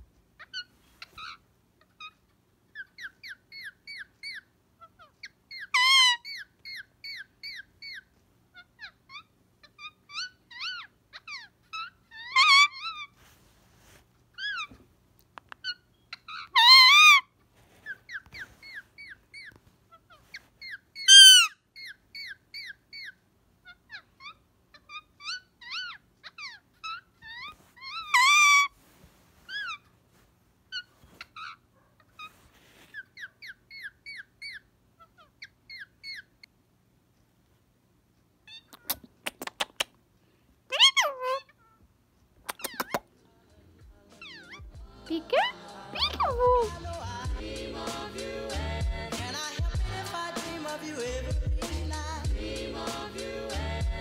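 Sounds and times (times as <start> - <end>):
parakeet chirping and chattering: 0.4 - 13.2, 14.4 - 14.8, 15.6 - 17.2, 17.8 - 28.7, 29.5 - 29.8, 32.9 - 36.5, 40.7 - 41.8, 42.4 - 43.1, 44.2 - 47.2
parakeet loud calls: 2.8 - 8.0, 8.8 - 13.1, 15.6 - 17.3, 20.6 - 23.1, 23.7 - 28.7, 40.7 - 41.5.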